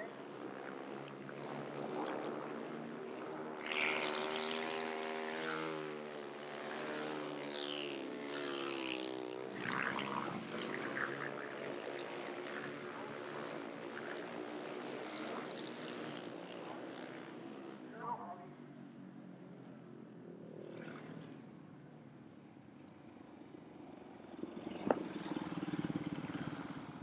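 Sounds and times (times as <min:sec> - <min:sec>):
motorcycle engine revving: 0:24.3 - 0:27.0.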